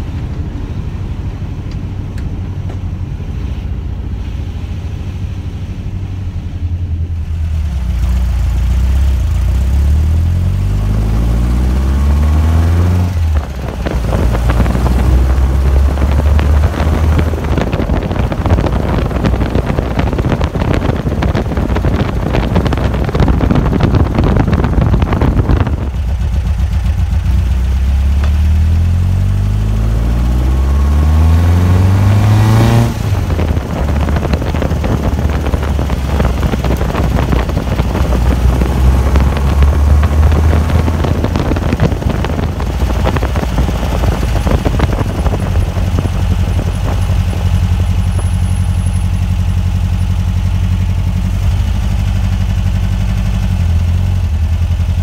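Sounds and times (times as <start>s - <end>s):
car engine accelerating: 0.0s - 55.0s
wind rush on microphone: 10.4s - 27.8s, 29.2s - 55.0s.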